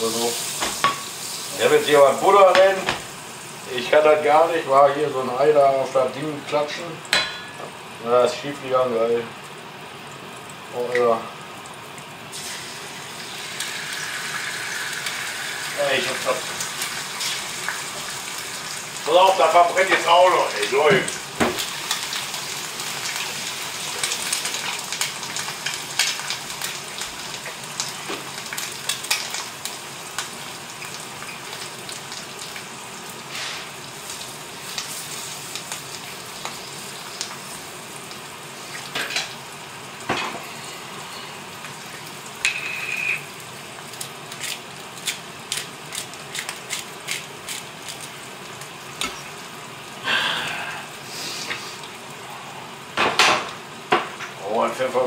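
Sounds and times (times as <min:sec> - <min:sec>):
egg sizzling in a pan: 0:00.0 - 0:05.5, 0:07.0 - 0:54.4.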